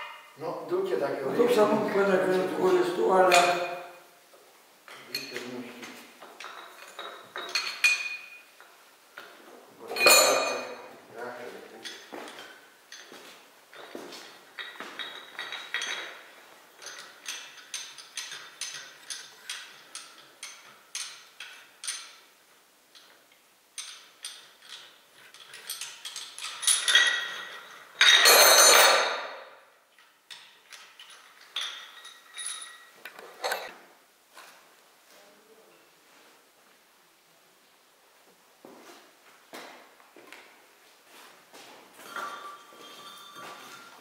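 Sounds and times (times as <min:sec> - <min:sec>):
light metal clinks and knocks: 0:04.9 - 0:33.8, 0:41.1 - 0:44.0.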